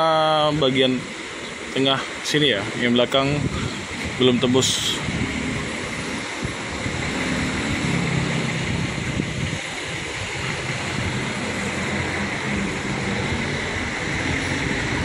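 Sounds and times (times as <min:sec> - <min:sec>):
diesel bus engine idling: 0:00.0 - 0:15.0
wind on microphone: 0:03.1 - 0:15.0.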